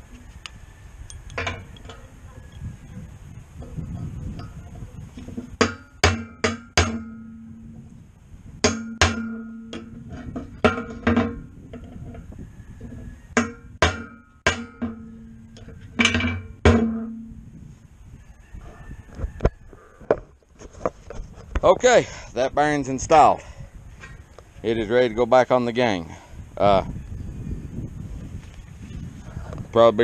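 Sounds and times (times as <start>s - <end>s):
hammer tapping metal punch: 5.6s - 7.6s, 8.6s - 9.9s, 13.4s - 15.4s.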